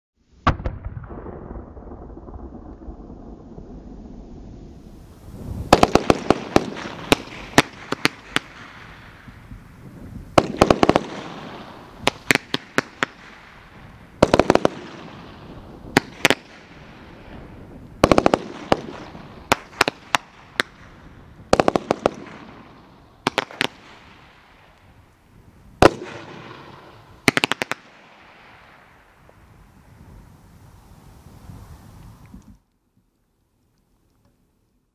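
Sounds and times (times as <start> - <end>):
firework hiss: 4.2 - 24.4, 28.4 - 32.6.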